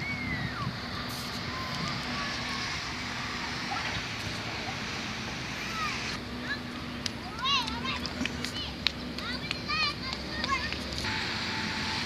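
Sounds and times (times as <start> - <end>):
outdoor hiss: 0.8 - 6.2, 11.0 - 12.0.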